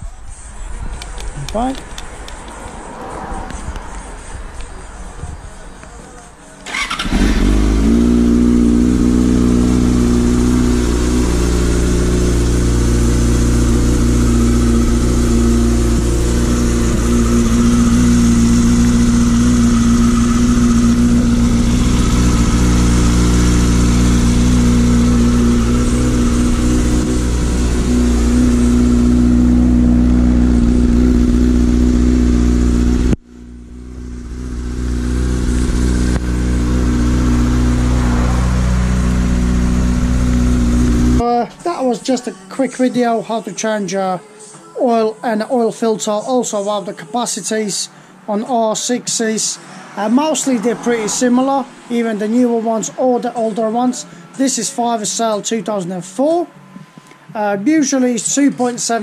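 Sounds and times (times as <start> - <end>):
motorcycle engine idling: 6.6 - 41.2.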